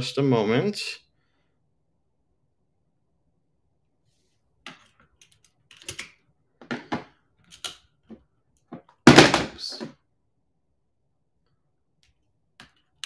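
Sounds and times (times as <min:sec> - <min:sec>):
clicks and knocks handling equipment: 0:04.7 - 0:09.9.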